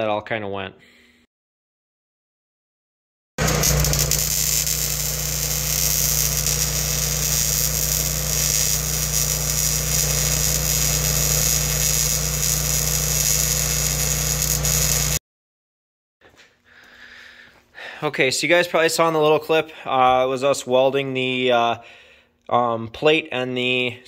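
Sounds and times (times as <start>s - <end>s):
arc welding crackling hiss: 3.4s - 15.2s
low hum: 3.4s - 15.2s.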